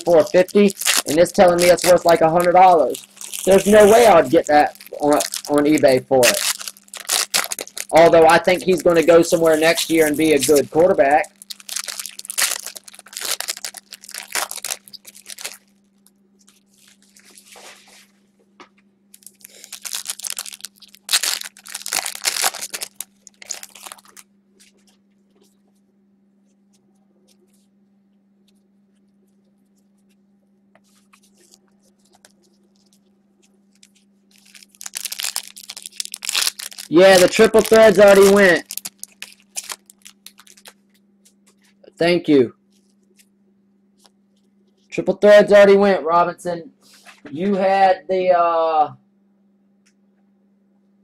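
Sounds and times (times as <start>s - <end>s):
wrappers tearing and crinkling: 0.0s - 15.8s, 16.4s - 17.8s, 19.1s - 24.3s, 33.7s - 40.8s.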